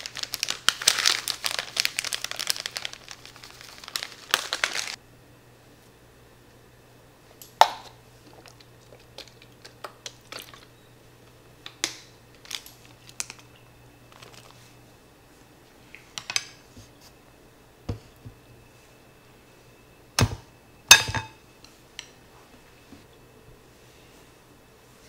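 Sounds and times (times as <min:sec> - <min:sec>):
plastic packaging crinkling: 0:00.0 - 0:05.0, 0:12.3 - 0:14.8.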